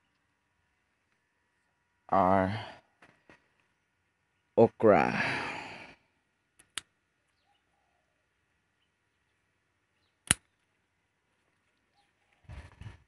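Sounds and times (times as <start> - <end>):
sharp clicks: 6.6 - 6.9, 10.2 - 10.5.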